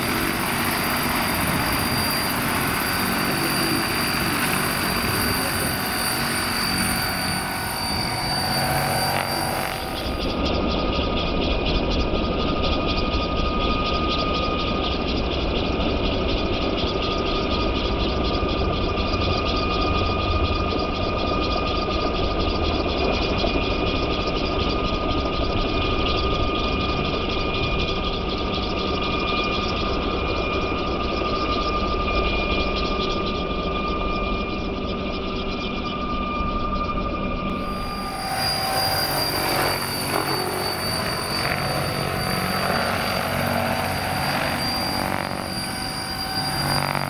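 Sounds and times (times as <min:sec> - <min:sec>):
electric motor whine: 0:00.0 - 0:10.3, 0:37.5 - 0:47.0
rapid rotor chop: 0:37.6 - 0:47.0.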